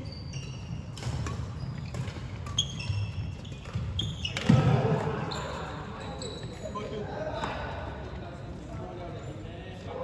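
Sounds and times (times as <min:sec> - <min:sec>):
shoes squeaking on wooden floor: 0:00.0 - 0:04.5
rackets striking shuttlecocks: 0:00.9 - 0:05.1.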